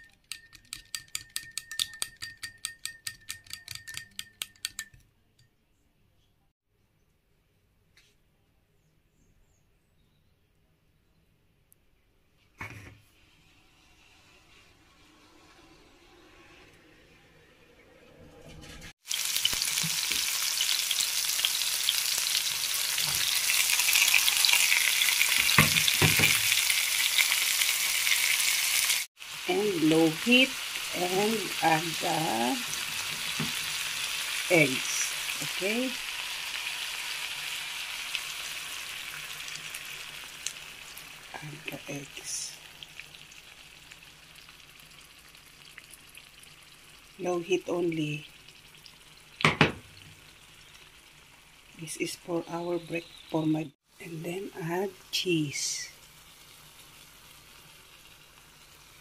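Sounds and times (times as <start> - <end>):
whisk tapping a ceramic bowl: 0.0 - 5.0
onion and tomato sizzling in oil: 13.2 - 17.1, 18.9 - 59.0.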